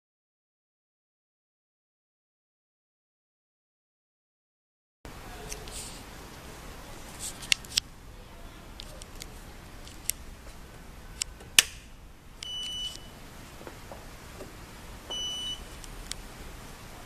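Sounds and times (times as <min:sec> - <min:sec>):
power switch clicking: 0:11.2 - 0:13.0.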